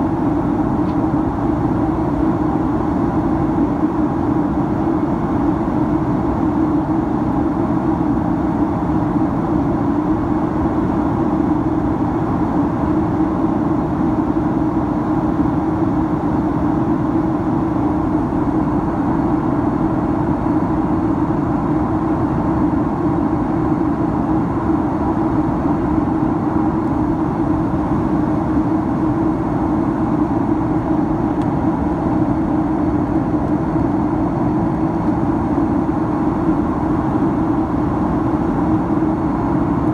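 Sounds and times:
airplane cabin engine drone: 0.0 - 39.9.

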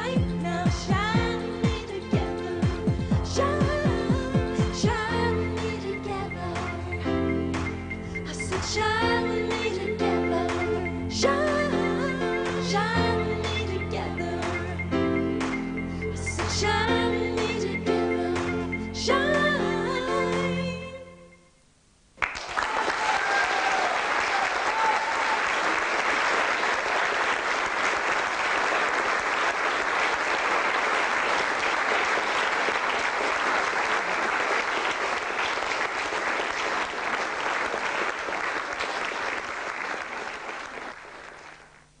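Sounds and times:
music: 0.0 - 21.6
audience applause: 22.2 - 41.8.

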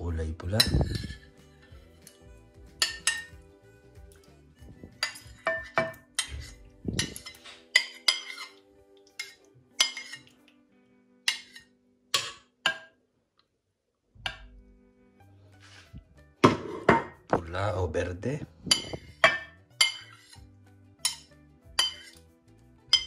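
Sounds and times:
background music with held notes: 0.0 - 12.8, 14.1 - 23.0
metal spoon clinking against bowl: 2.8 - 3.4, 5.0 - 8.6, 9.2 - 10.3, 11.3 - 12.4, 18.7 - 20.4, 21.0 - 22.2.

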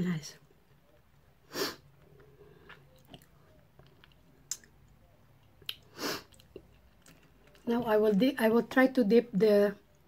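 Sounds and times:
chewing clicks and smacks: 2.7 - 7.7.

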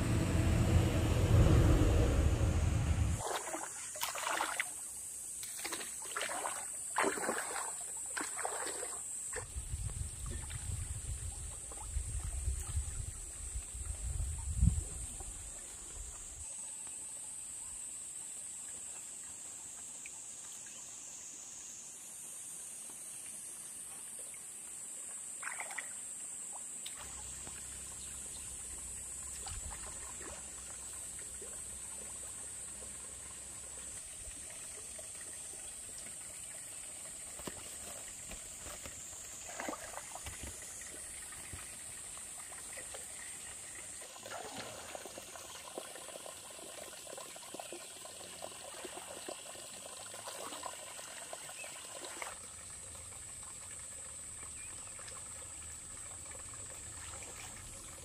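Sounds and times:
insects droning: 0.0 - 12.4, 13.1 - 51.8
water trickling: 26.8 - 58.0.

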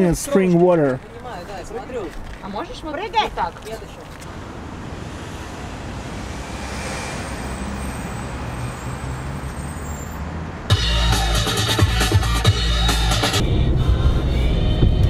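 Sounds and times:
rumble of passing vehicles: 0.6 - 15.0
music: 10.7 - 15.0.

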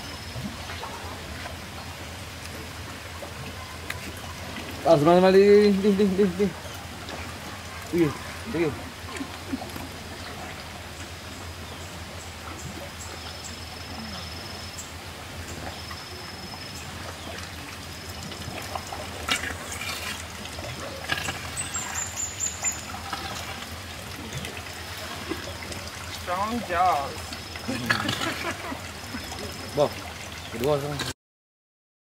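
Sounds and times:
running water: 0.0 - 31.2
elephant chewing crunches: 21.1 - 22.1.

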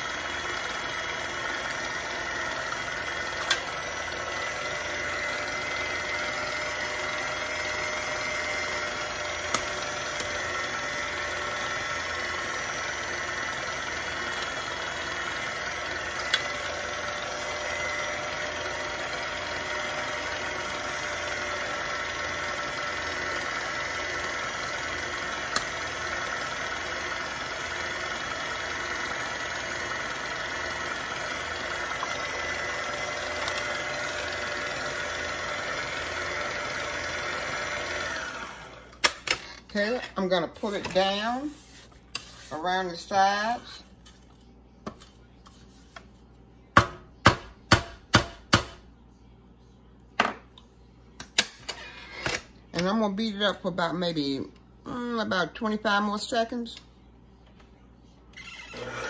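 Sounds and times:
electric mixer motor running: 0.0 - 39.0, 58.4 - 59.0.

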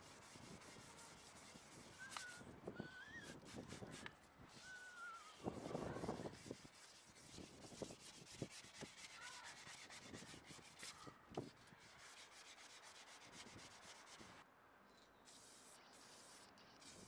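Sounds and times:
gloved hand rubbing car body panel: 0.0 - 2.4, 3.3 - 11.0.

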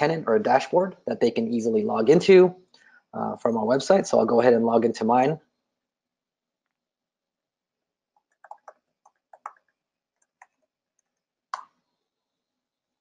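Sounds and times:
faint keyboard typing: 8.1 - 11.8.

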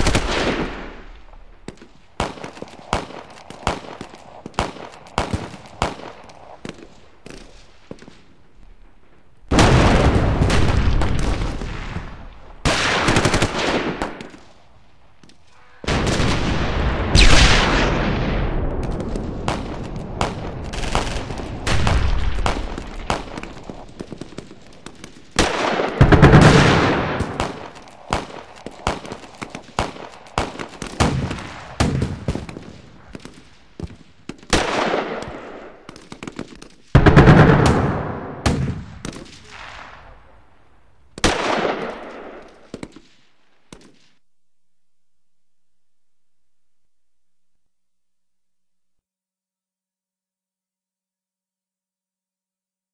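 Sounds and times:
heavy explosions: 9.5 - 14.1, 15.8 - 24.7, 25.4 - 28.2
automatic gunfire: 12.6 - 14.4
single gunshots: 15.8 - 24.5, 25.4 - 40.2, 41.2 - 43.1.

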